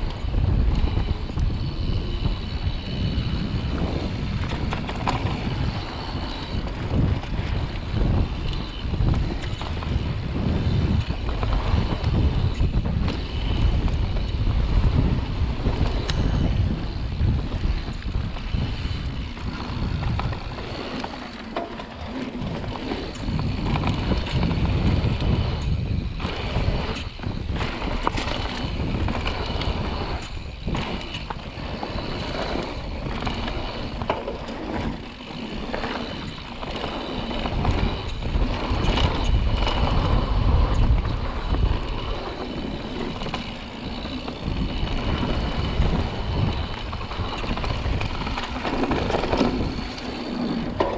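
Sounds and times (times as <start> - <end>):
wind buffeting the microphone: 0.0 - 50.9
bike knocks and rattles: 0.1 - 50.9
tyres rolling over dirt: 14.8 - 50.9.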